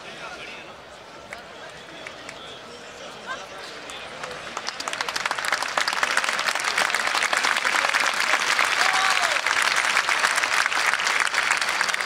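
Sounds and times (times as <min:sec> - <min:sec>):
crowd applauding: 0:03.3 - 0:12.0.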